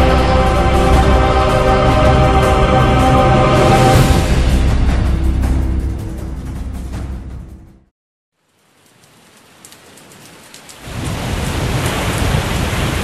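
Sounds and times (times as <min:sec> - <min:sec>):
heavy rain: 0:00.0 - 0:04.4, 0:08.4 - 0:13.0.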